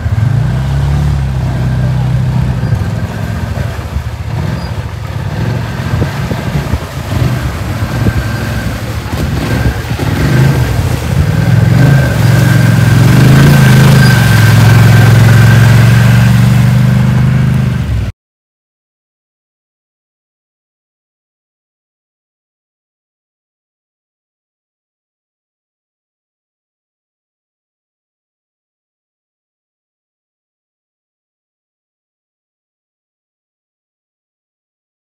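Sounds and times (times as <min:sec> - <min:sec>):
quad engine running: 0:00.0 - 0:18.1
water splashing from wheels: 0:00.0 - 0:18.1.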